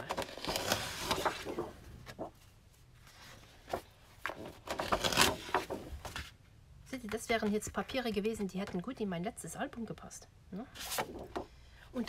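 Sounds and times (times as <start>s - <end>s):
paper sheets rustling: 0.0s - 6.3s, 10.8s - 11.4s.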